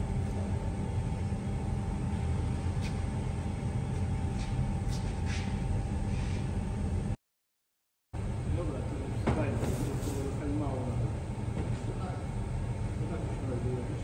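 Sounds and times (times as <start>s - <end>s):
low machinery hum: 0.0s - 7.2s, 8.2s - 14.0s
thin steady whine: 0.0s - 7.2s.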